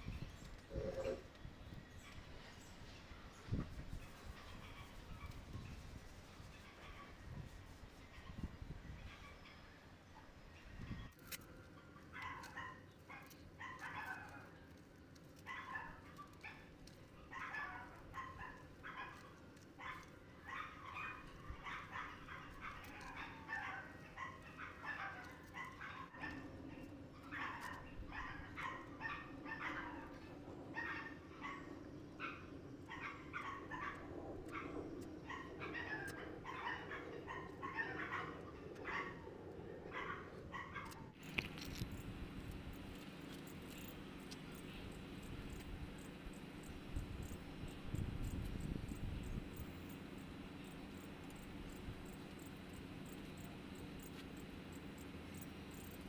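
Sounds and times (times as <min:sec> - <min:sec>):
faint dog barking: 0:00.7 - 0:01.3, 0:06.5 - 0:14.6, 0:15.4 - 0:56.0
low steady hum: 0:14.7 - 0:56.0.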